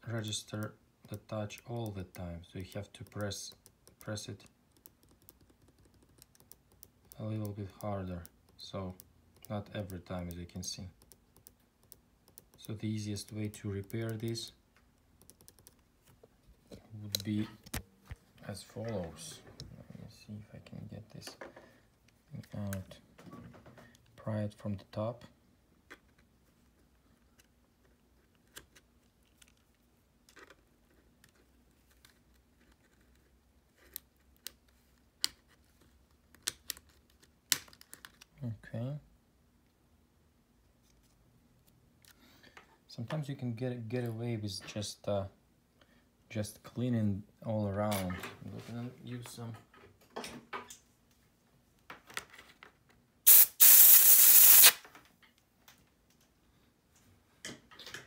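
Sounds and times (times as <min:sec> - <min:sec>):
compressed air hissing: 0:53.3 - 0:54.8.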